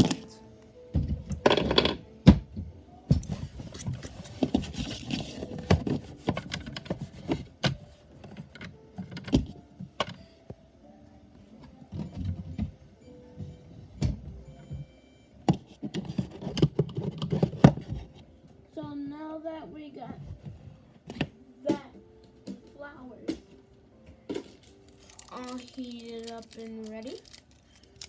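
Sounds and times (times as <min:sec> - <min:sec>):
objects knocking and clunking: 0:00.9 - 0:10.2, 0:11.6 - 0:12.8, 0:13.4 - 0:18.2, 0:23.3 - 0:24.8.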